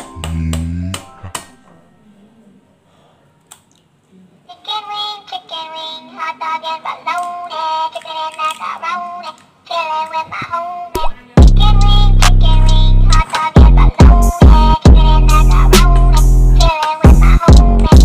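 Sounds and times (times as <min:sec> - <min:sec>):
high synthetic singing voice: 0:00.0 - 0:01.6, 0:04.5 - 0:18.0
background music: 0:00.0 - 0:01.7.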